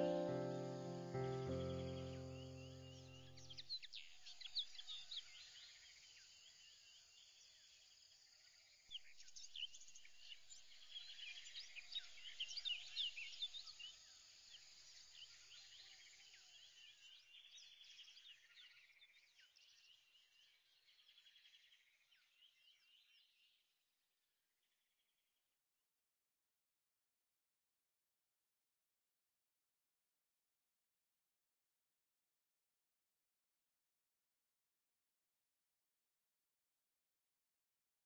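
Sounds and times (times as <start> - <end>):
small birds chirping: 0.0 - 7.6, 9.0 - 23.5.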